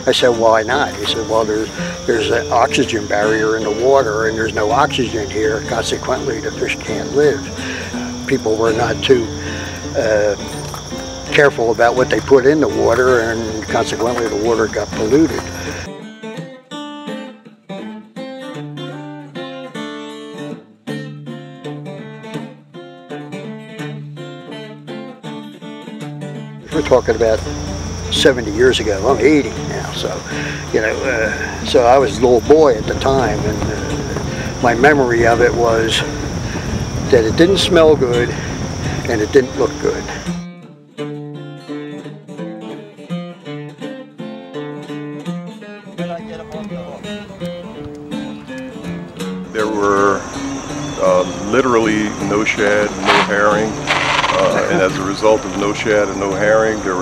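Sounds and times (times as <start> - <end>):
plucked acoustic guitar: 0.0 - 57.0
low sustained bass line: 26.7 - 40.2, 49.5 - 57.0.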